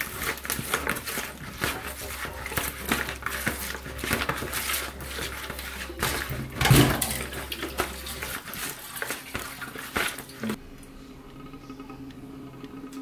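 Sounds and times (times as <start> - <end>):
wet squishing of fish mixed by hand: 0.0 - 10.6.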